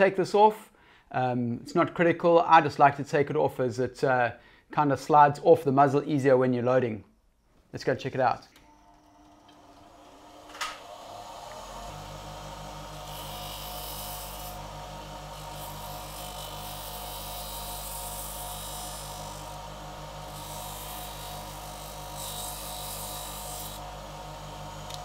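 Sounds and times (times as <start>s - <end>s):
bench grinder motor hum: 8.6s - 25.0s
rubber rasping on grinding wheel: 13.0s - 14.6s, 15.2s - 23.9s.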